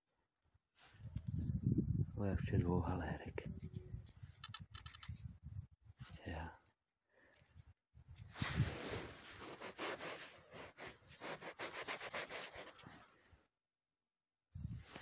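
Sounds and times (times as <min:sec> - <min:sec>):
coin rubbing on fabric: 0:08.6 - 0:13.1.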